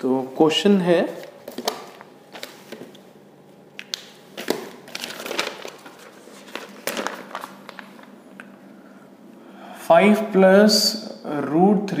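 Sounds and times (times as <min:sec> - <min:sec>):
footsteps walking: 0:01.1 - 0:03.0
paper rustling: 0:03.9 - 0:08.2.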